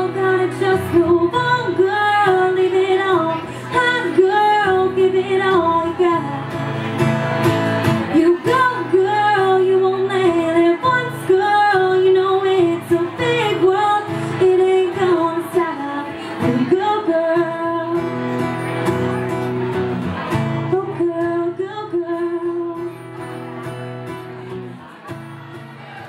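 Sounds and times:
woman singing: 0.0 - 6.8, 8.0 - 18.3, 20.6 - 23.1
acoustic guitar: 0.0 - 26.0.

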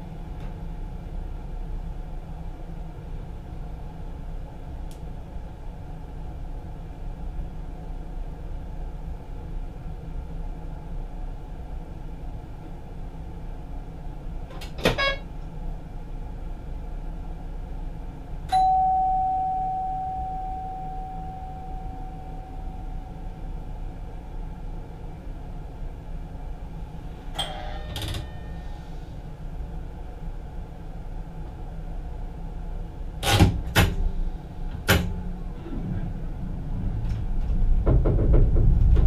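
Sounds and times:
train cab rumble: 0.0 - 39.0
bell-like chime: 18.5 - 23.0
knocks: 37.7 - 39.0.

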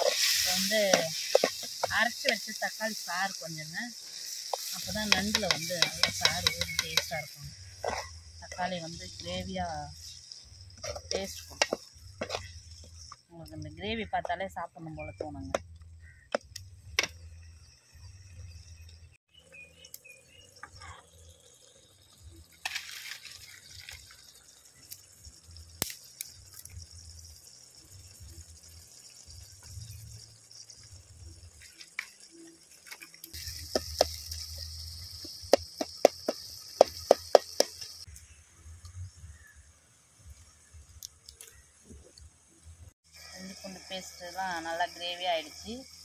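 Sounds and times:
metal ladle stirring: 0.0 - 2.0, 10.8 - 13.1
masala sizzling in a pan: 0.0 - 41.8, 43.0 - 46.0.

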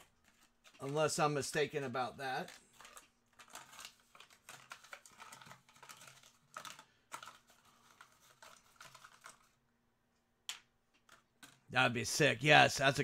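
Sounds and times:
faint typing on keyboard: 0.0 - 9.6.

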